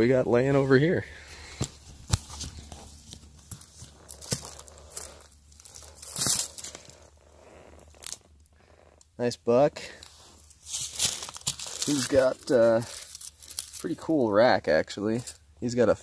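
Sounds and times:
footsteps crunching on debris: 1.4s - 7.0s, 10.0s - 13.9s
crackles: 1.4s - 14.2s.

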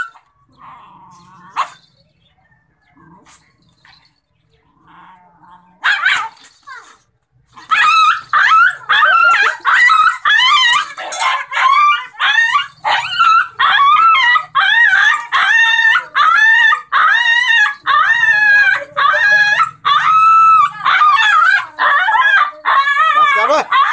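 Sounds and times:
small dog barking and yelping: 1.4s - 1.9s, 5.8s - 23.9s.

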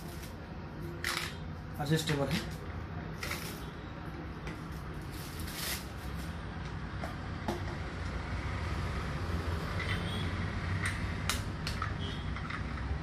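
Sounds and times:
plastic packaging rustling: 4.7s - 6.3s.

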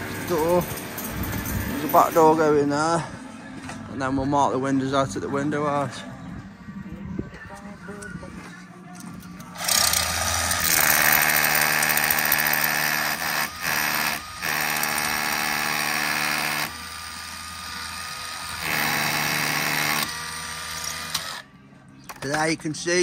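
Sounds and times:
power drill running: 9.6s - 21.4s.

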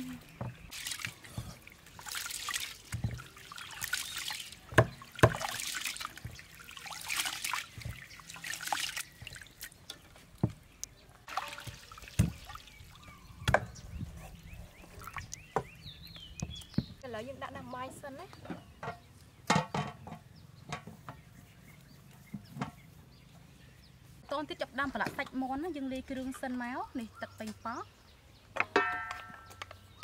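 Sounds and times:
water pouring: 0.0s - 10.0s, 11.2s - 13.3s, 14.9s - 15.4s
water sloshing rice washing: 0.0s - 15.5s.

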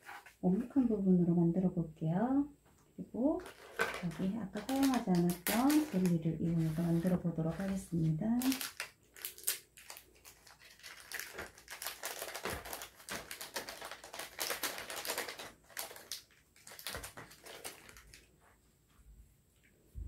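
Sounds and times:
plastic wrapper crinkling: 3.4s - 18.4s.

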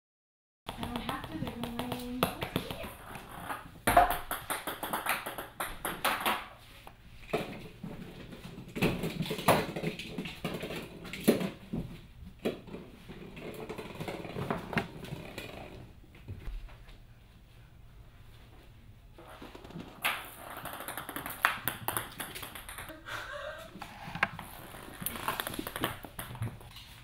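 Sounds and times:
plastic balls clattering on wood floor: 0.7s - 6.6s, 7.2s - 15.9s, 19.2s - 23.0s, 23.8s - 26.9s.

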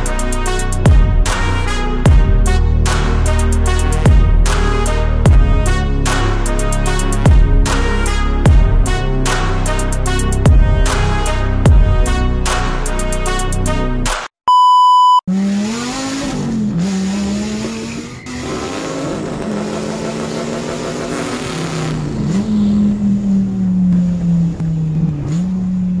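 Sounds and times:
car engine revving: 0.0s - 13.8s, 15.3s - 26.0s
music: 0.0s - 14.3s
short electronic beep: 14.5s - 15.3s.

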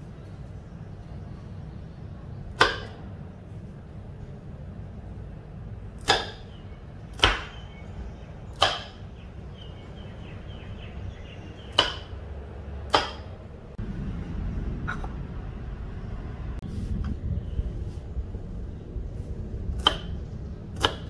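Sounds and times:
knife chopping on wooden board: 2.6s - 3.0s, 6.0s - 6.5s, 7.1s - 7.6s, 8.5s - 9.0s, 11.7s - 12.2s, 12.9s - 13.3s, 19.8s - 20.2s, 20.8s - 21.0s.

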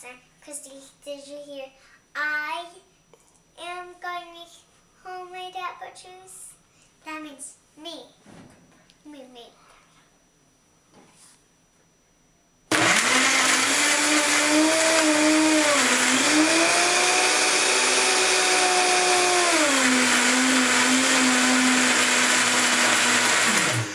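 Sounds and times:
electric blender running: 12.7s - 23.9s.

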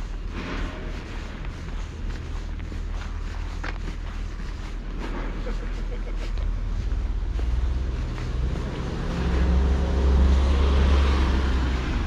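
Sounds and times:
vehicle engine passing by: 6.7s - 12.0s.

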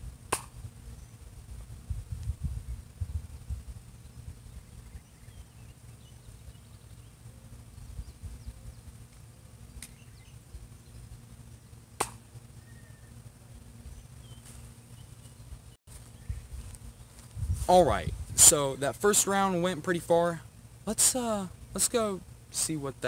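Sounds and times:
wind rumble on microphone: 0.0s - 7.0s, 7.6s - 9.0s, 15.0s - 18.8s
faint bird chirps: 4.0s - 8.9s, 9.7s - 11.7s, 12.5s - 17.2s.

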